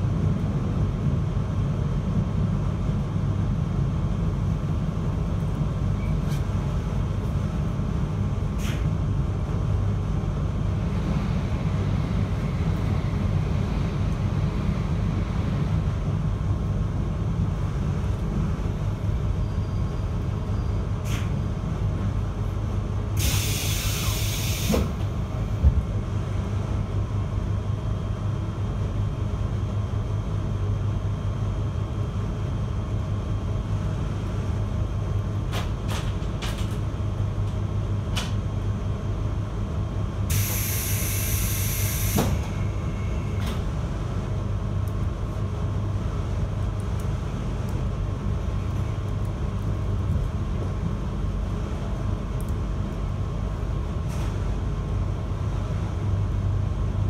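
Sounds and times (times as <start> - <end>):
train rumble and hum: 0.0 - 57.0
air hisses: 23.2 - 24.8, 40.3 - 42.4.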